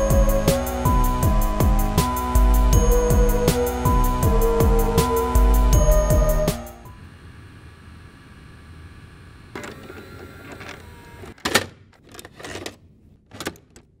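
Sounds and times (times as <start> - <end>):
faint hum: 0.0 - 11.4.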